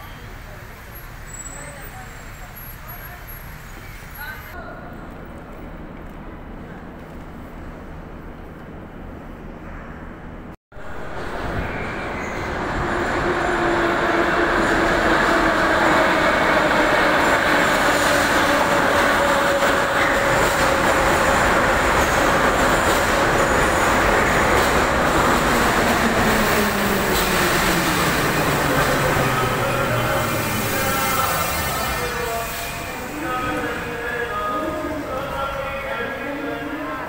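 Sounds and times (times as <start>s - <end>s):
train wheels rumbling on rails: 10.8s - 37.0s.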